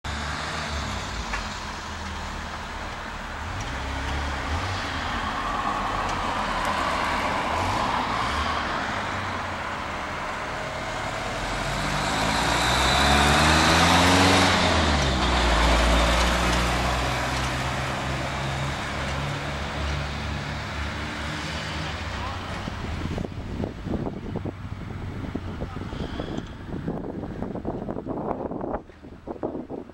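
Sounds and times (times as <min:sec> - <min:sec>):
traffic driving along street: 0:00.0 - 0:29.9
vehicle passing close: 0:00.1 - 0:28.6.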